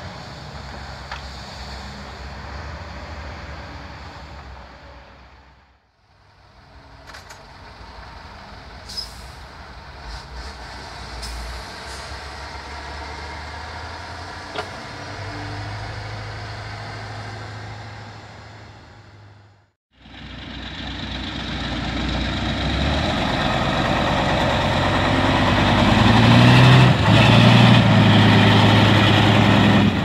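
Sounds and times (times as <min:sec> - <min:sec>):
truck diesel engine running: 0:16.4 - 0:30.0.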